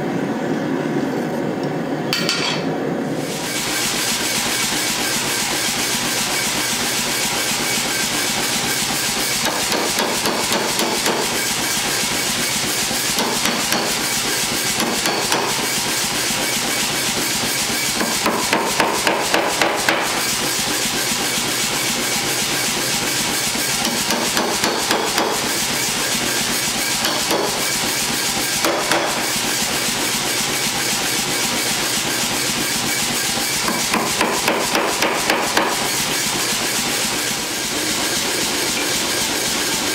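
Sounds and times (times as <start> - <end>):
hammer striking hot steel: 2.1 - 2.7, 9.3 - 11.6, 13.0 - 15.8, 17.8 - 20.3, 23.8 - 25.6, 26.3 - 27.8, 28.5 - 29.6, 33.6 - 36.0.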